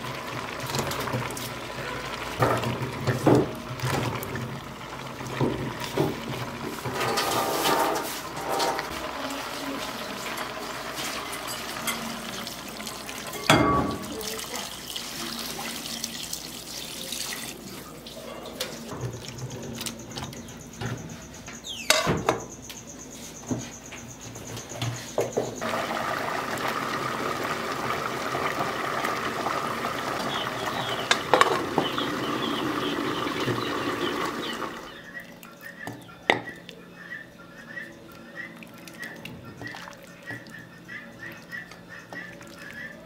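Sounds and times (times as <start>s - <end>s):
water pouring into metal pot: 0.0s - 18.2s, 25.6s - 35.0s
metal pot lid clanking: 31.1s - 31.7s.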